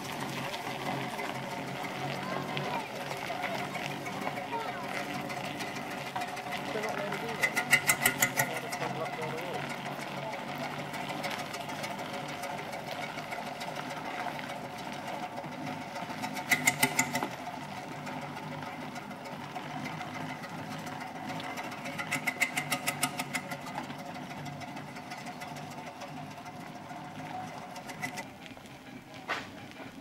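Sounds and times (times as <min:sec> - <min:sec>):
quick regular mechanical beats: 0:00.0 - 0:28.3
steam traction engine clattering: 0:00.0 - 0:30.0.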